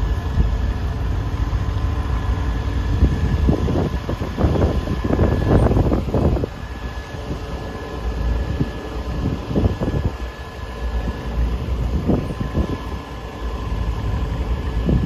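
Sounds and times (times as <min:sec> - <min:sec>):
distant tractor engines: 0:00.0 - 0:15.0
wind buffeting microphone: 0:00.0 - 0:15.0.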